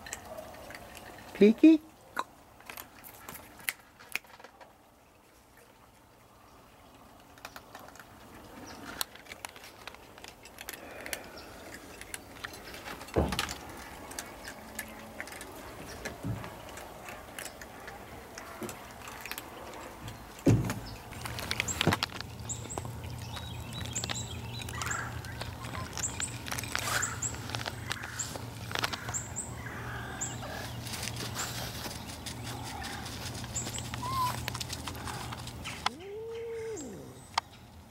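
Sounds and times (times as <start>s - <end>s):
small birds chirping: 10.7s - 37.9s
handling noise and knocks: 20.0s - 23.0s.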